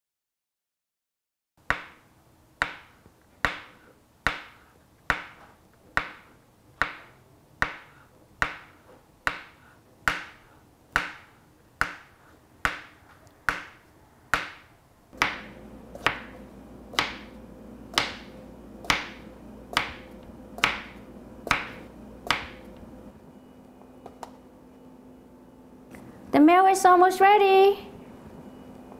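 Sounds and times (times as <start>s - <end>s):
low hum: 15.0s - 27.1s, 27.7s - 28.9s.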